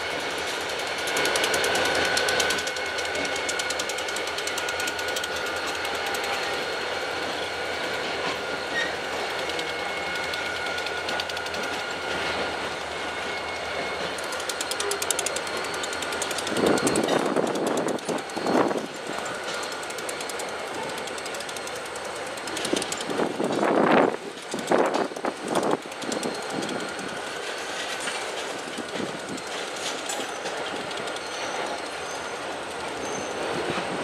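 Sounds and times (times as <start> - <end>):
freight train rolling on rails: 0.0 - 34.0
high-pitched wheel squeal: 8.6 - 9.1, 13.0 - 18.9, 31.1 - 33.8.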